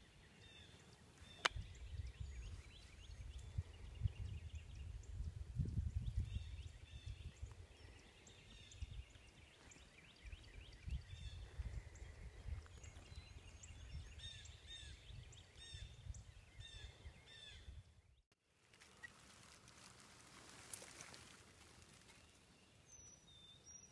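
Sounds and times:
songbirds chirping and singing: 0.0s - 18.2s, 22.0s - 23.9s
low rumble on microphone: 1.2s - 9.4s.

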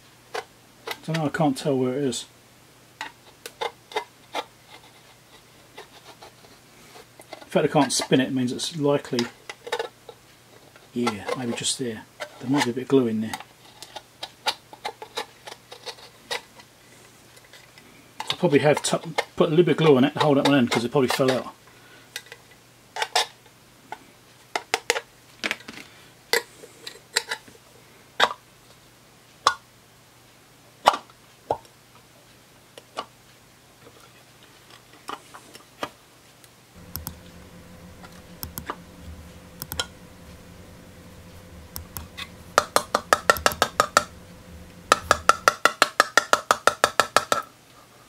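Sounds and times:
low steady hum: 36.8s - 45.7s.

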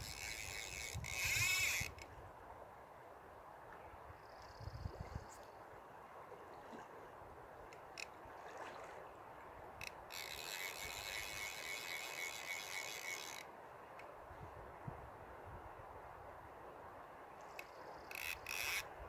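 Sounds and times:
fishing reel drag buzzing: 0.0s - 2.1s, 9.8s - 13.5s, 17.6s - 18.9s
river flowing: 5.4s - 14.3s
short reel clicks: 17.5s - 18.9s.

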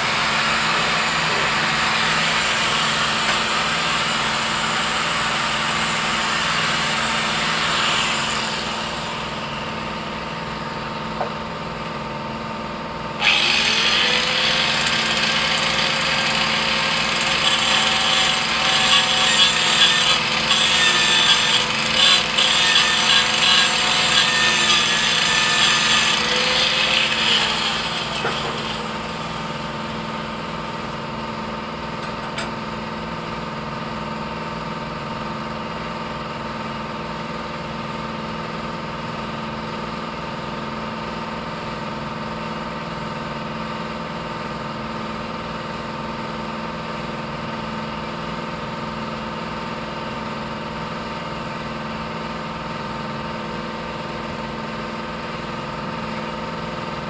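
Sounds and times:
angle grinder grinding metal: 0.0s - 9.6s, 13.2s - 30.8s.

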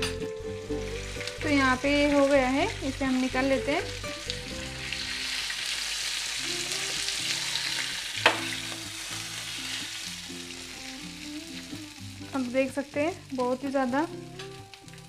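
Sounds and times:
fish sizzling in oil: 0.7s - 15.0s.

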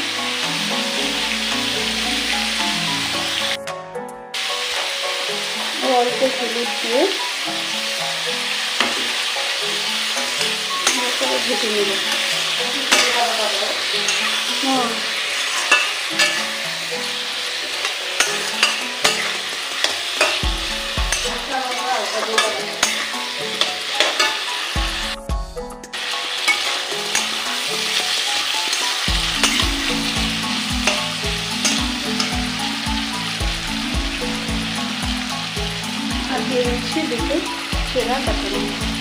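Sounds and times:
vegetables sizzling in hot oil: 0.0s - 3.6s, 4.4s - 25.2s, 26.0s - 39.0s
metal spatula scraping pan: 8.7s - 24.8s, 26.3s - 32.5s.

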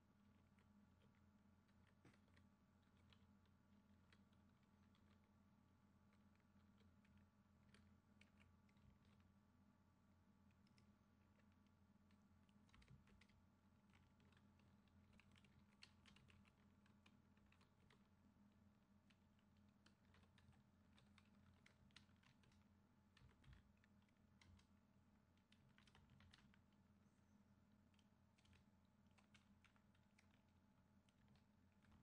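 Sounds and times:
low electrical hum: 0.0s - 32.0s
keyboard typing: 0.3s - 5.3s, 10.5s - 18.2s, 19.0s - 26.8s, 27.8s - 32.0s.

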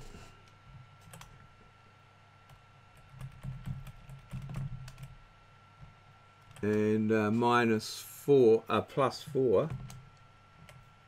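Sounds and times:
keyboard keys clicking: 3.0s - 5.1s.

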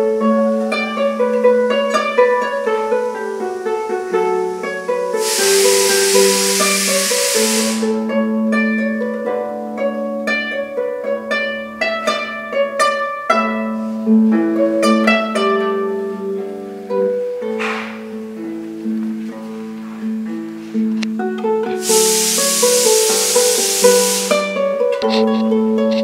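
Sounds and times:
loud hiss: 0.0s - 8.3s, 21.8s - 25.6s
harp plucked notes and chords: 0.0s - 26.0s.

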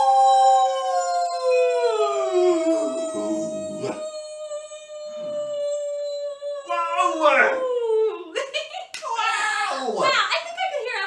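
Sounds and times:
people howling like wolves: 0.0s - 8.4s.

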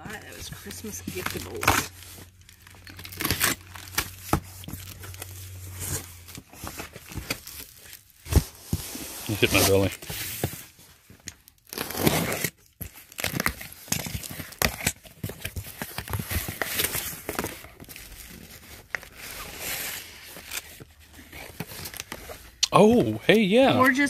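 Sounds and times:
tissue paper crinkling: 0.3s - 22.6s
box cutter slitting tape: 3.0s - 4.4s, 11.6s - 17.6s.

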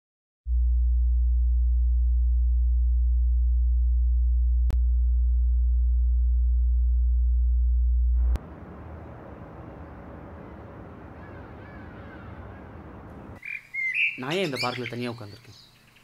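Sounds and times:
deep synthesized bass hum: 0.5s - 11.4s.

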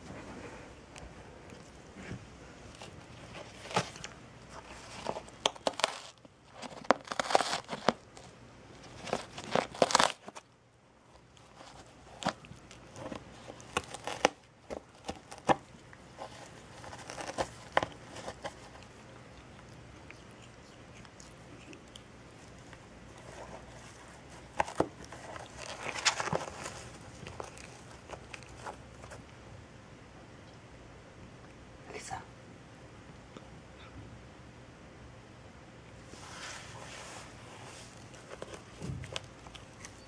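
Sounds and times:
cat tearing cardboard box: 2.7s - 10.5s, 11.1s - 29.2s, 37.7s - 40.0s.

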